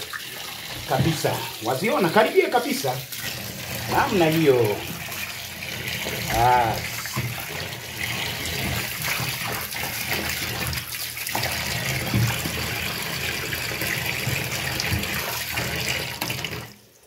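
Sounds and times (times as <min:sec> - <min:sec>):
tap water running into sink: 0:00.0 - 0:17.0.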